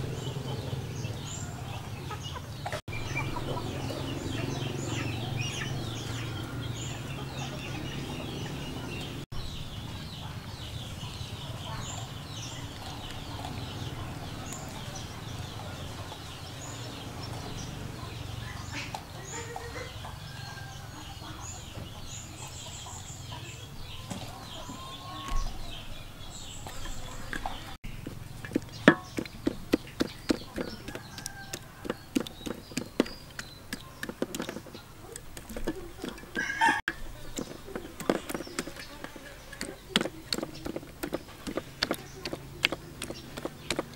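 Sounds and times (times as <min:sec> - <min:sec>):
chickens clucking: 0:00.0 - 0:43.9
rapid sharp taps: 0:27.3 - 0:43.9.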